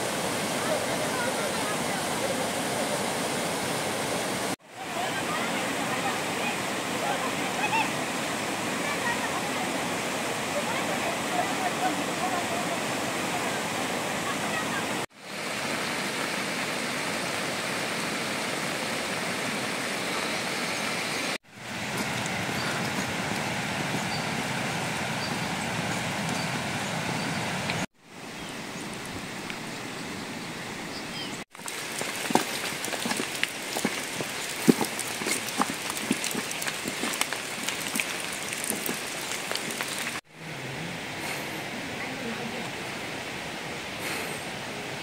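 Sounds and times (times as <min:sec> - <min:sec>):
rain: 0:00.0 - 0:45.0
running stream water: 0:00.0 - 0:45.0
raindrops pattering: 0:31.5 - 0:40.2.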